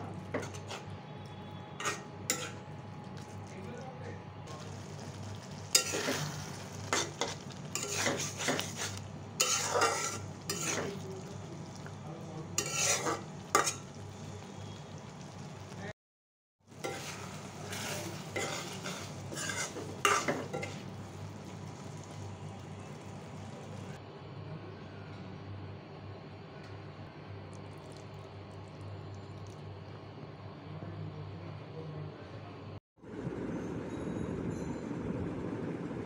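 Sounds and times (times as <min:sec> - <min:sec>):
metal spoon scraping a wok: 0:00.3 - 0:02.6, 0:04.5 - 0:11.9, 0:12.5 - 0:14.1, 0:16.7 - 0:22.2
sauce simmering: 0:04.4 - 0:15.9, 0:16.7 - 0:24.0, 0:27.5 - 0:29.9.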